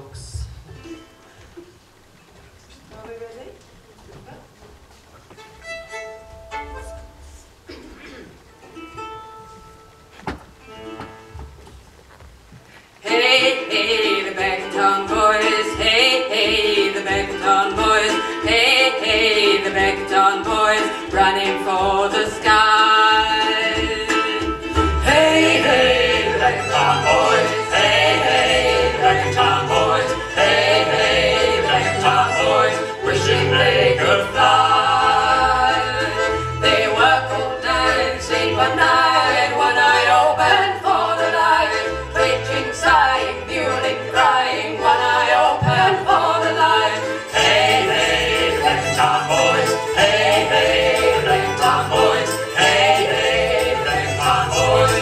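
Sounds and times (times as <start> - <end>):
folk band playing: 4.7 - 7.8, 8.4 - 12.0, 12.6 - 55.0
singing: 13.0 - 55.0.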